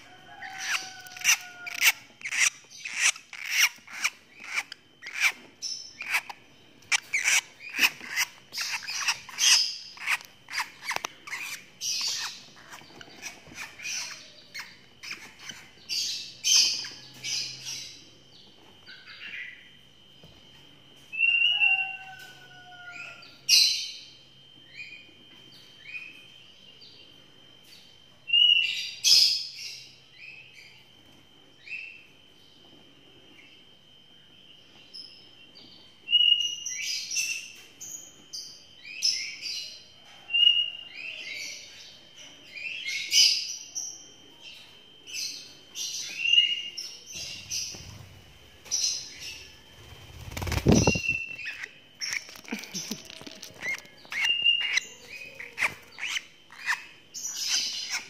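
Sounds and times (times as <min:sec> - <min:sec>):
lovebirds chirping and squawking: 0:00.0 - 0:19.6, 0:45.2 - 0:58.0.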